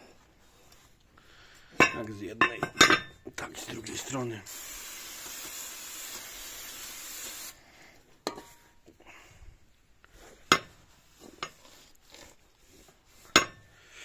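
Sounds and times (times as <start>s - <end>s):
aerosol spray hissing: 4.4s - 7.6s.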